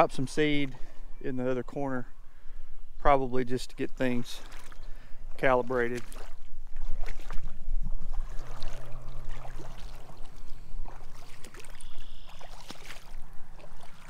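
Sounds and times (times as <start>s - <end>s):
wind rumbling on microphone: 6.0s - 14.0s.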